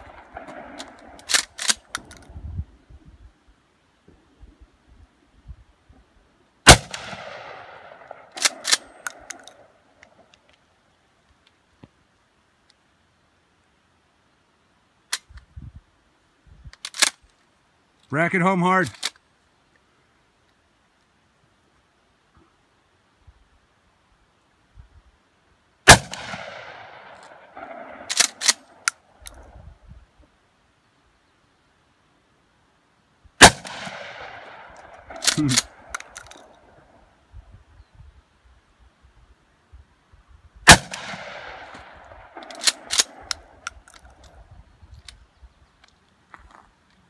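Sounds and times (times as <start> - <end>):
shotgun shot echoing: 6.7 - 9.3, 25.9 - 28.8, 33.4 - 36.0, 40.7 - 43.6
shotgun slide racking clacks: 42.4 - 44.2.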